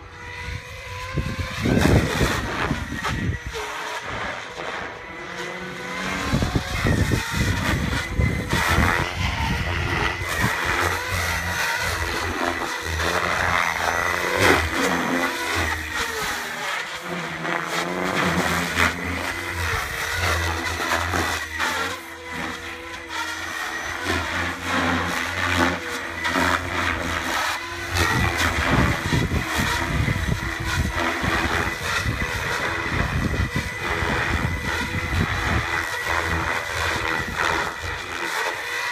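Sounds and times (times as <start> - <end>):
high electric motor whine: 0.0 - 38.9
helicopter rotor thrum: 5.8 - 21.7, 24.0 - 38.2.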